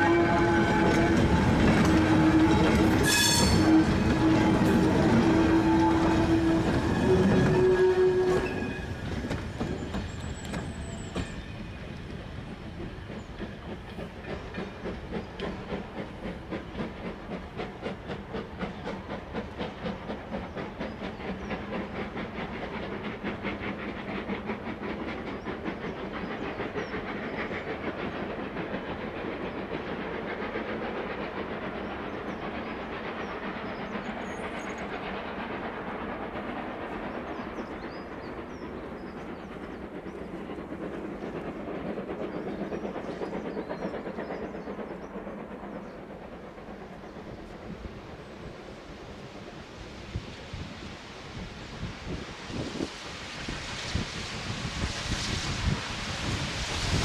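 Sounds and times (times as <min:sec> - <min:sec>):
steam locomotive whistle: 0:00.0 - 0:09.2
train rhythmic beat: 0:00.0 - 0:11.2, 0:11.9 - 0:53.4.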